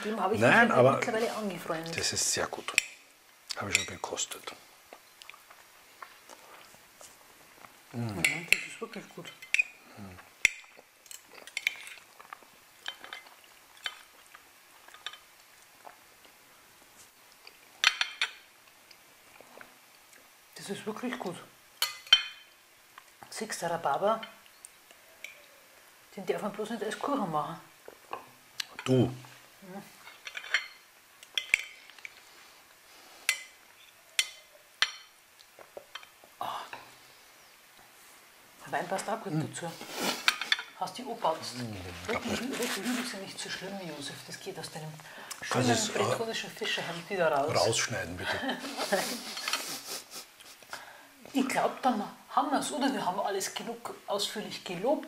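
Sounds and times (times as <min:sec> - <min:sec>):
cutlery clinking on plates: 0:08.2 - 0:09.8, 0:17.8 - 0:18.5, 0:21.8 - 0:22.5, 0:30.1 - 0:32.1, 0:34.2 - 0:35.2, 0:40.2 - 0:40.8.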